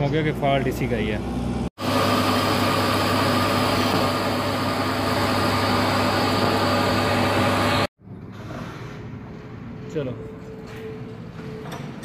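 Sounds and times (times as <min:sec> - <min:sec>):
metal lathe hum and whine: 0:01.8 - 0:07.9.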